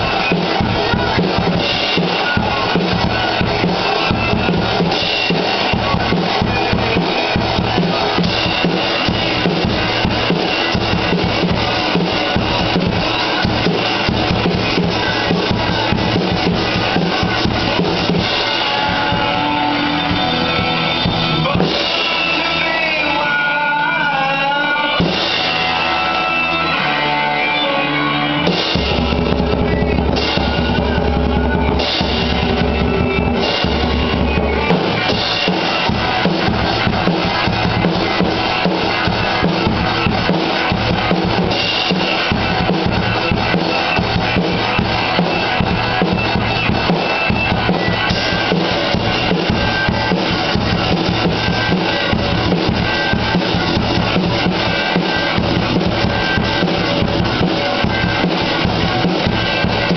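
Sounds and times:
drum kit rock beat: 0:00.0 - 0:59.9
recorded rock song: 0:00.0 - 0:59.9.

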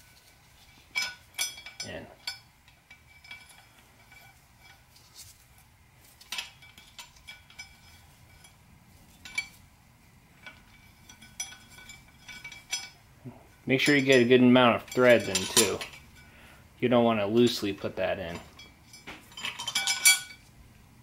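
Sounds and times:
wrench clinking on metal: 0:00.7 - 0:04.9, 0:06.2 - 0:09.6, 0:10.4 - 0:16.4, 0:17.4 - 0:20.5.

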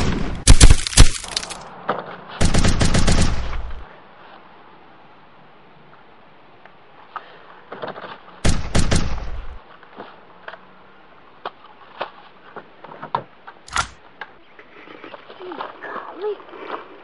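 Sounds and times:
rifle shots: 0:00.0 - 0:01.6, 0:02.4 - 0:03.8, 0:08.4 - 0:09.6.

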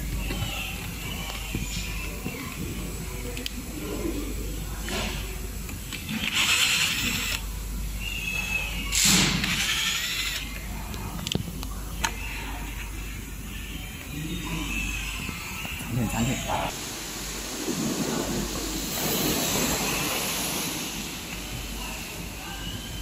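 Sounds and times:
cordless drill running: 0:06.2 - 0:07.4, 0:09.4 - 0:10.5.

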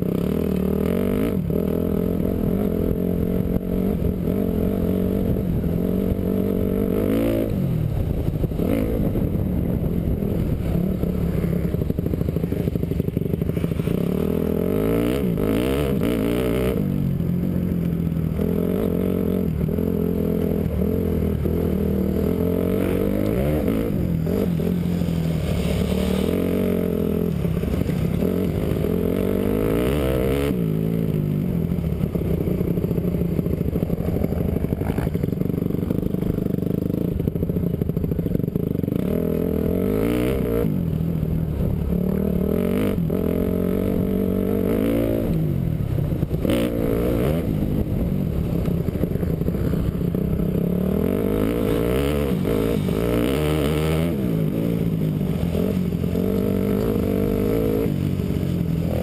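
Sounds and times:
dirt bike engine revving: 0:00.0 - 0:17.0, 0:18.3 - 0:37.3, 0:46.2 - 0:59.0.

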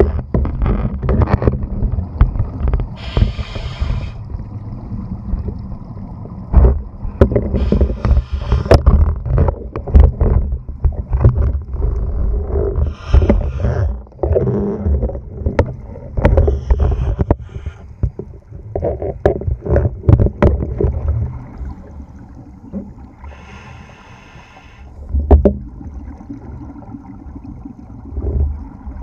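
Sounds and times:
low underwater rumble: 0:00.0 - 0:24.3, 0:24.9 - 0:29.0
scuba regulator breathing: 0:03.0 - 0:04.2, 0:07.5 - 0:08.8, 0:12.8 - 0:14.0, 0:16.4 - 0:18.0, 0:23.2 - 0:24.9.

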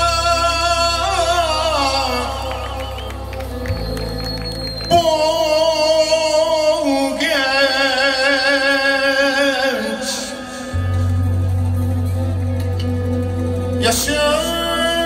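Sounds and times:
band of keyboard drums and violins: 0:00.0 - 0:15.0
deep bass: 0:00.0 - 0:15.0
man singing long wavering notes: 0:13.6 - 0:15.0.

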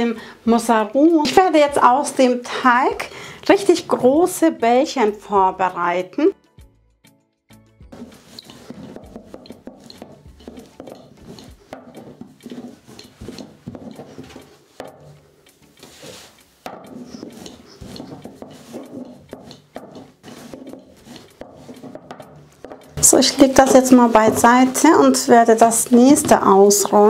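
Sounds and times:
rolling pin rolling dough: 0:03.5 - 0:04.8, 0:07.9 - 0:27.0.

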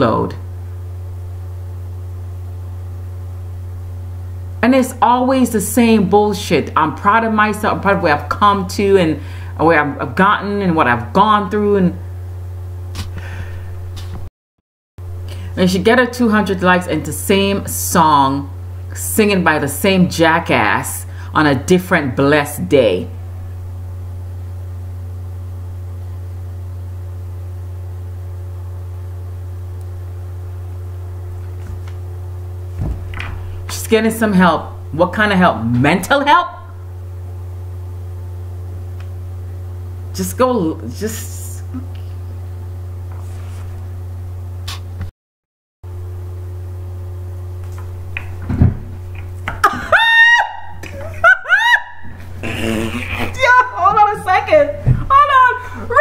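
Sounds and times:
steady low hum: 0:00.0 - 0:14.3, 0:15.0 - 0:45.1, 0:45.8 - 0:56.0.

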